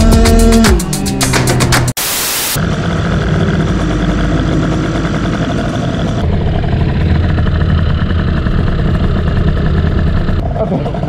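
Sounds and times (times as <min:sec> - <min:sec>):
tv static noise: 0:01.9 - 0:02.6
scooter engine idling: 0:02.6 - 0:11.0.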